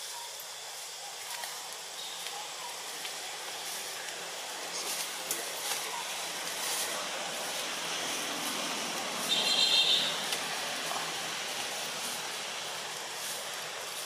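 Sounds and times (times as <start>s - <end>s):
outdoor hiss: 0.0s - 14.0s
high-pitched call: 9.2s - 10.2s.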